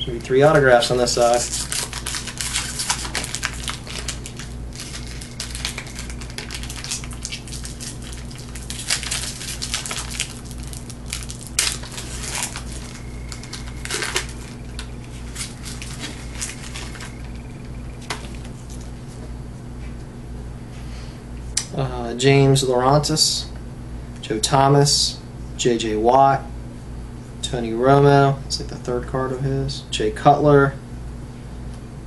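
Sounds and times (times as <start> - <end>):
low hum: 0.0 - 22.8
cards being handled: 0.3 - 19.3
foil wrapper crinkling and tearing: 0.6 - 19.0.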